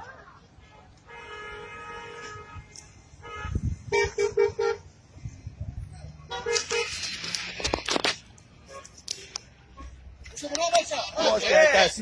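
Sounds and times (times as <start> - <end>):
street noise: 0.0 - 12.0
car horn short beeps: 0.7 - 4.8.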